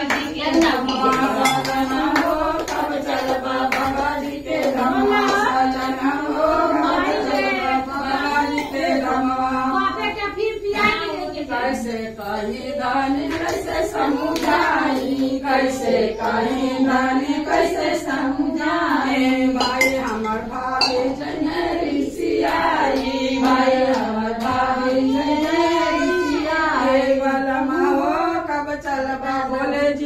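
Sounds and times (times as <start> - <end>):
high-pitched voice singing: 25.0 - 26.6.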